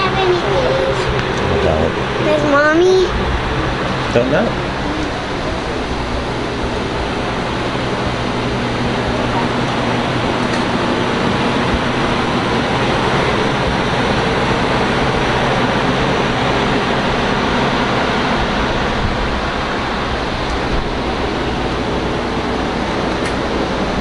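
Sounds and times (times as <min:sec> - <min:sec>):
loud rushing noise: 0:00.0 - 0:24.0
low hum: 0:00.0 - 0:24.0.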